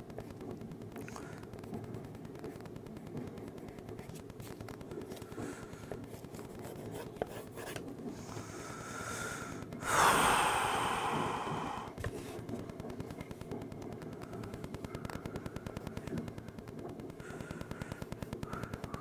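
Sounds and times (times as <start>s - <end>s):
pencil scratching on paper: 6.1s - 7.8s
loud breath out: 8.8s - 12.0s.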